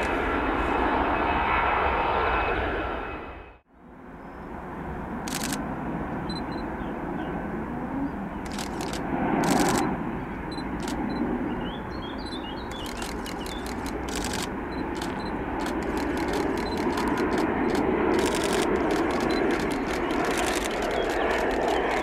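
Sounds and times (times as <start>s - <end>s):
jet engines rumbling: 0.0s - 22.0s
sharp clicks: 5.3s - 5.6s, 8.5s - 9.9s, 10.6s - 11.0s, 12.7s - 22.0s.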